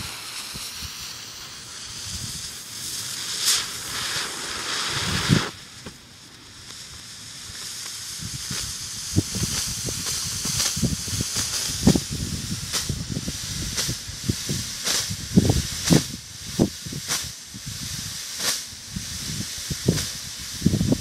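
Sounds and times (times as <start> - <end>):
smoke tube hissing: 0.0 - 21.0.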